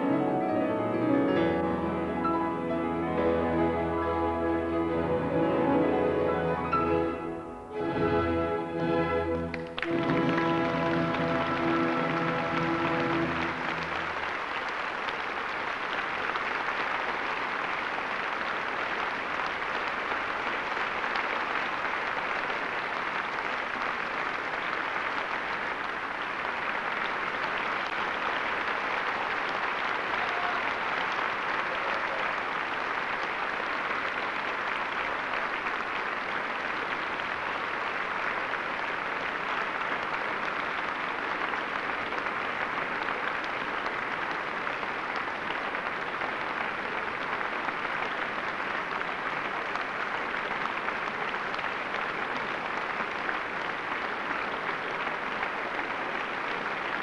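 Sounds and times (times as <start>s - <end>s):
orchestra chord: 0.0s - 14.1s
audience applauding: 0.0s - 57.0s.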